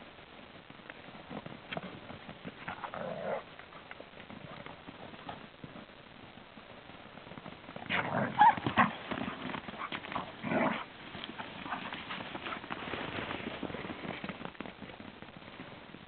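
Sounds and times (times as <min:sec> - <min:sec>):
dogs play growling: 0:02.6 - 0:05.3, 0:07.9 - 0:13.5
paws running on sand: 0:06.9 - 0:16.0.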